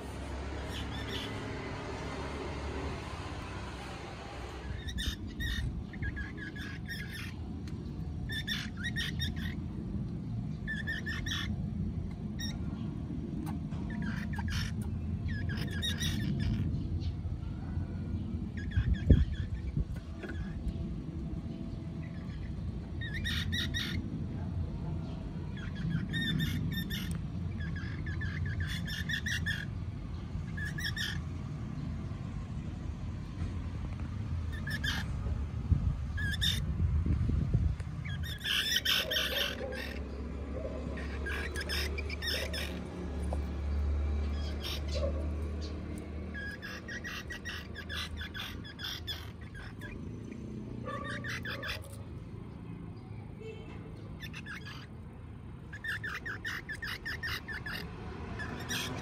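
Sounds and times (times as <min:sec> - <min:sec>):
baby squirrels chirping: 0:00.5 - 0:01.6, 0:04.6 - 0:07.5, 0:08.2 - 0:09.7, 0:10.6 - 0:11.6, 0:12.4 - 0:12.7, 0:13.4 - 0:16.7, 0:18.5 - 0:20.8, 0:22.0 - 0:24.0, 0:25.6 - 0:29.8, 0:30.4 - 0:31.2, 0:34.4 - 0:52.3, 0:54.1 - 0:59.0.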